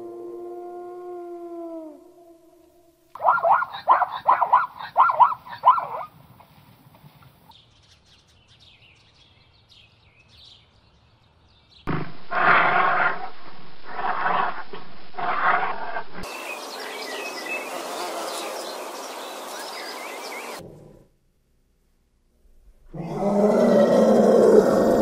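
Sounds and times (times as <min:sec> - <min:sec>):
zebra barking yelps: 0:03.2 - 0:06.1
bear growling: 0:11.9 - 0:16.3, 0:20.6 - 0:21.1, 0:22.9 - 0:25.0.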